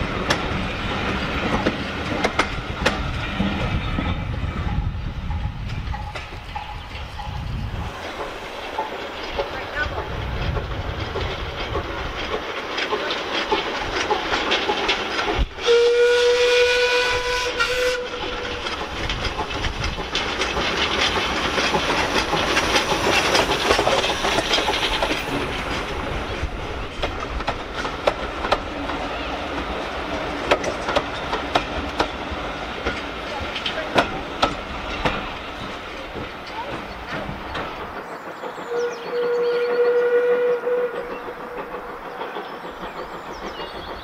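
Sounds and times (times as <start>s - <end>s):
steam locomotive chuffing: 0.0s - 44.0s
wheels clicking over rail joints: 0.0s - 44.0s
steam whistle: 15.6s - 18.6s, 38.6s - 41.2s.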